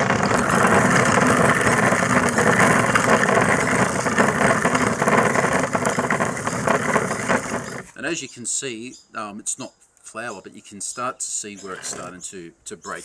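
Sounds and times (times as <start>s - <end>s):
millstone grinding: 0.0s - 8.0s.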